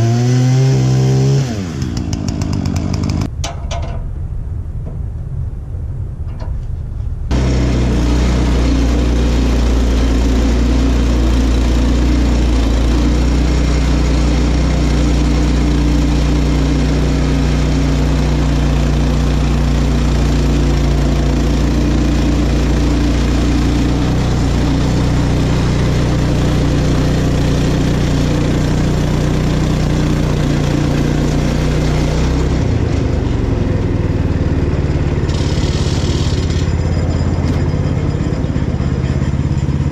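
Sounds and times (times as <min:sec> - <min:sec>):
band saw cutting log: 0:00.0 - 0:03.3, 0:07.3 - 0:34.1, 0:34.9 - 0:37.7
gas engine running: 0:00.0 - 0:03.4, 0:06.2 - 0:39.9.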